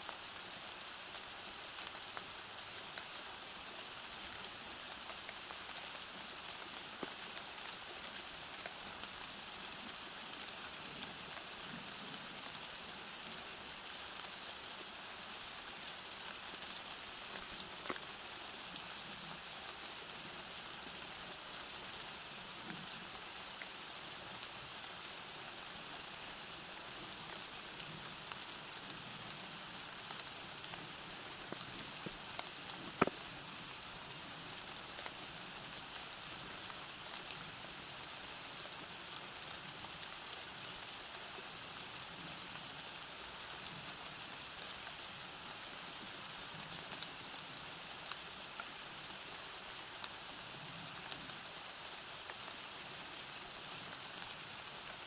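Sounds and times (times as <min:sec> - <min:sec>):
steady rain hiss: 0:00.0 - 0:55.0
raindrop taps: 0:32.9 - 0:33.2.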